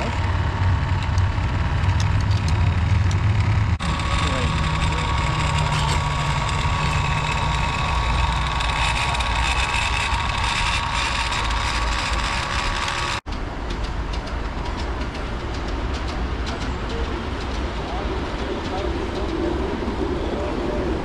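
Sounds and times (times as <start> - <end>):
electric blower whirring hum: 0.0 - 13.2
miniature train rumbling on track: 0.0 - 21.0.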